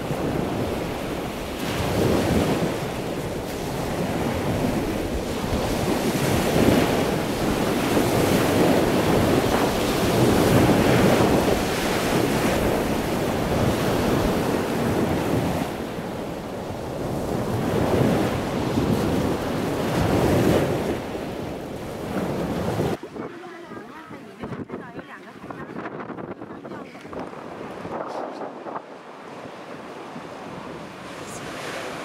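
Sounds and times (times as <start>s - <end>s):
surf breaking on beach: 0.0s - 24.7s, 25.3s - 32.0s
wind buffeting microphone: 0.0s - 32.0s.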